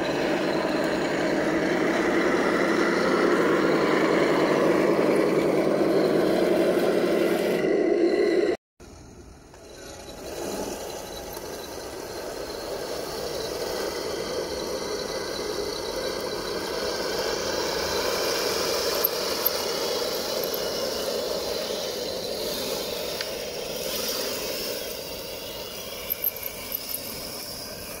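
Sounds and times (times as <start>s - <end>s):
model tank driving over gravel: 9.0s - 28.0s.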